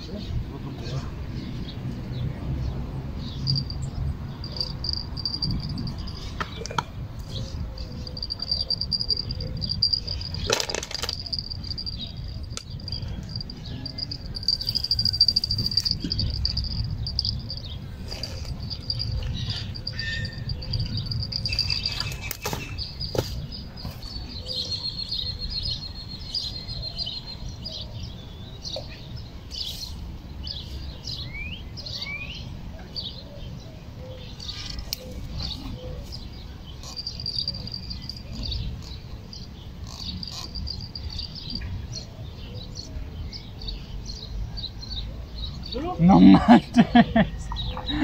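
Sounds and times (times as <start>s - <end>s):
insect trilling: 4.4s - 6.2s, 7.6s - 22.4s, 36.8s - 39.0s, 39.8s - 41.4s
knocks and rustles: 21.5s - 24.0s.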